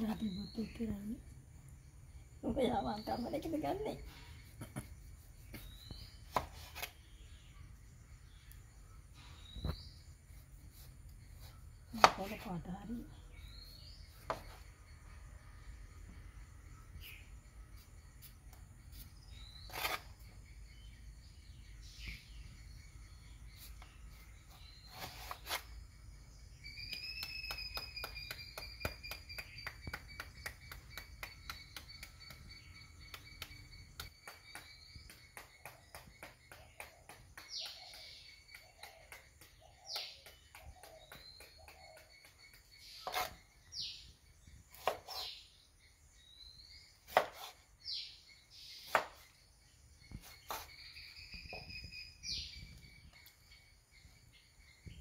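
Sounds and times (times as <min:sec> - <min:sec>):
birds chirping: 0:00.0 - 0:55.0
knife cutting on wooden board: 0:19.6 - 0:20.2, 0:24.5 - 0:25.8, 0:43.0 - 0:43.4, 0:44.7 - 0:45.4, 0:47.1 - 0:47.7, 0:50.2 - 0:50.8.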